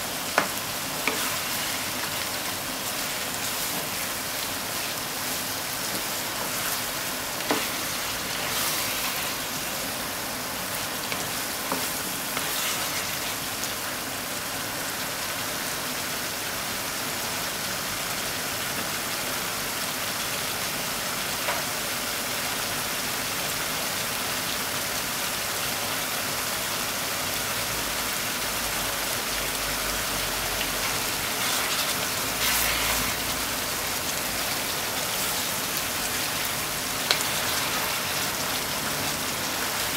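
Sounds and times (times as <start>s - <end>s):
food sizzling in a frying pan: 0.0s - 39.9s
spatula tapping and scraping: 0.3s - 9.6s, 11.0s - 13.4s, 30.8s - 33.3s, 36.1s - 38.1s.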